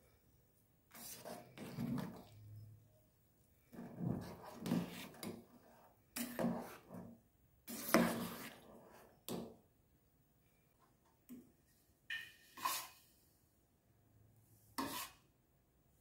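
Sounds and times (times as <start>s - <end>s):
steel ladle scraping a pan: 0.9s - 2.4s, 3.7s - 7.1s, 7.7s - 9.2s, 12.1s - 13.1s, 14.8s - 15.2s.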